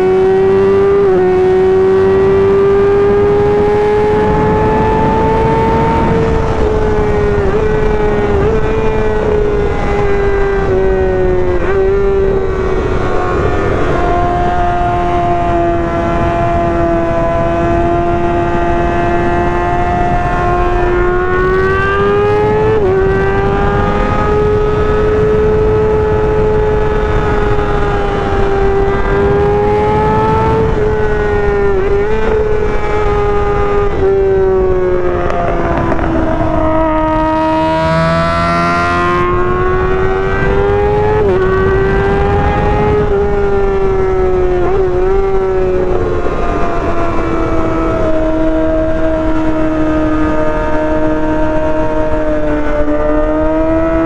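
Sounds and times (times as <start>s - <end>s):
motorcycle engine running: 0.0s - 54.0s
steady low rushing noise: 29.1s - 37.9s.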